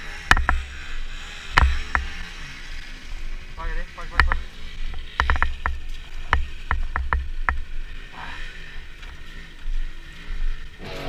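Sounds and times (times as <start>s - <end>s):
dirt bike knocking over logs: 0.2s - 0.9s, 1.5s - 2.3s, 4.1s - 7.9s.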